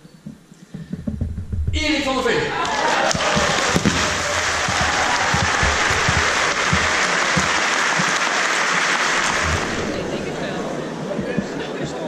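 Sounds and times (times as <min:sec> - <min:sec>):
low thumps: 0:00.0 - 0:08.4, 0:09.0 - 0:12.0
audience applauding: 0:02.6 - 0:12.0.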